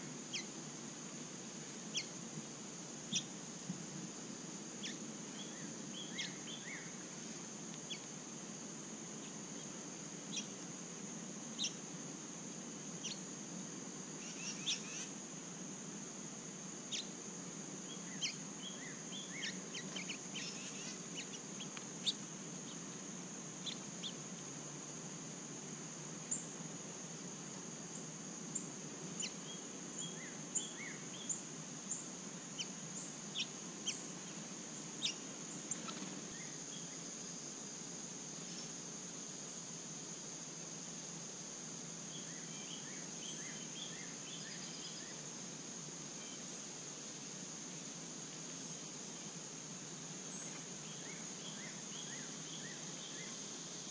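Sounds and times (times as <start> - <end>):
high-pitched insect drone: 0.0 - 1.0, 3.0 - 3.5, 4.7 - 7.1, 14.1 - 15.2, 16.8 - 24.3.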